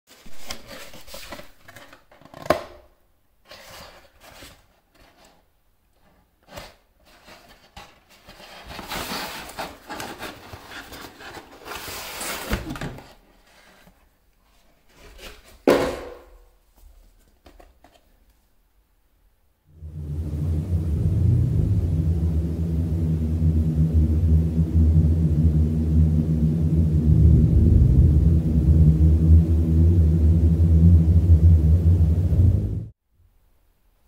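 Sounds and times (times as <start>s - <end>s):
cardboard rustling and scraping: 0.1s - 2.8s, 3.4s - 15.9s.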